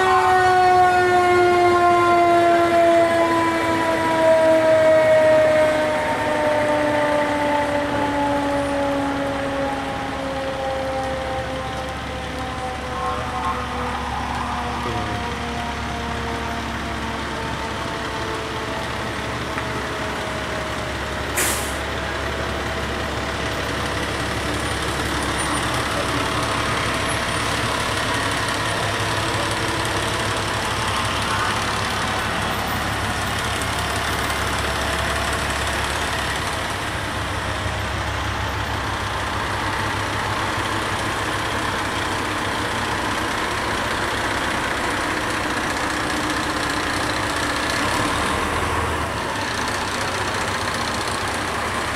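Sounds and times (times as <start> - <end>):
diesel engine droning: 0.0 - 51.9
air brakes hissing: 21.3 - 21.9.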